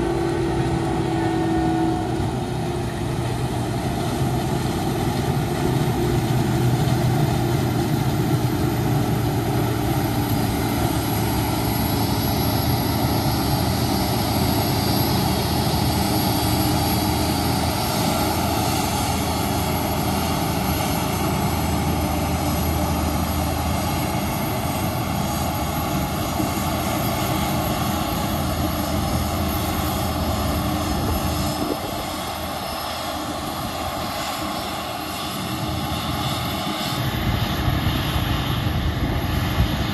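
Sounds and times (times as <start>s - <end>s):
forage harvester drone with whine: 0.0s - 39.9s
tractor engine: 0.0s - 39.9s
wind rumbling on microphone: 2.2s - 39.9s.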